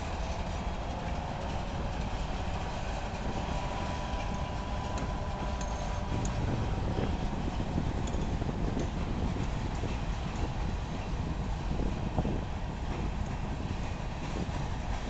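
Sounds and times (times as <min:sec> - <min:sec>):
freight train rolling past: 0:00.0 - 0:15.0.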